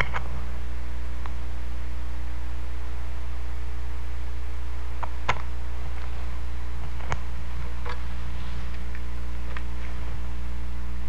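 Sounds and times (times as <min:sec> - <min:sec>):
clicks of playback equipment: 0:00.0 - 0:00.3, 0:05.0 - 0:05.5, 0:06.8 - 0:08.1
low electrical hum: 0:00.0 - 0:11.0.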